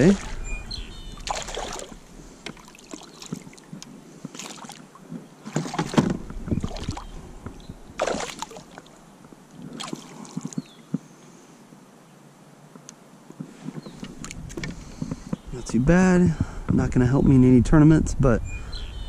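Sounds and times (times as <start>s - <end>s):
fish splashing in landing net: 1.2s - 2.0s, 8.0s - 8.9s.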